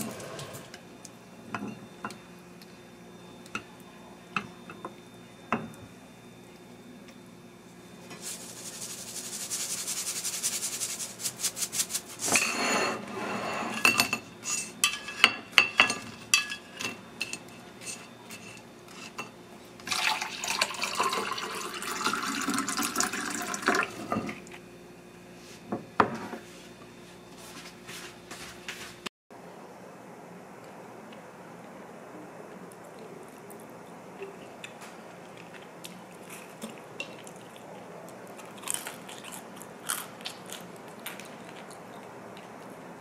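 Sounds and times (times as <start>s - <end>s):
utensils scraping dishes: 0.0s - 0.8s, 12.2s - 19.3s
water pouring into glass: 19.9s - 24.0s.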